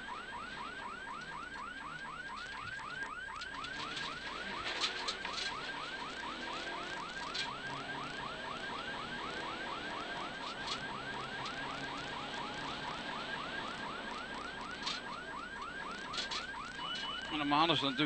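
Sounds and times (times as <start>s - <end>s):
electronic chirps: 15.9s - 18.0s.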